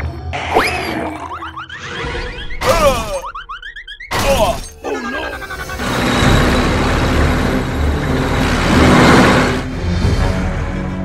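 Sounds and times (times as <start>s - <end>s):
music: 0.0s - 3.2s, 4.0s - 11.0s
squeaky gliding cartoon effects: 0.4s - 8.4s
rushing engine sound effect: 5.2s - 11.0s.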